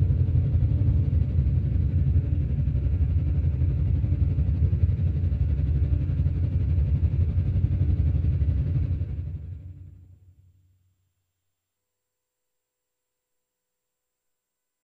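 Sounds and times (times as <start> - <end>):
low rumbling drone: 0.0 - 10.4.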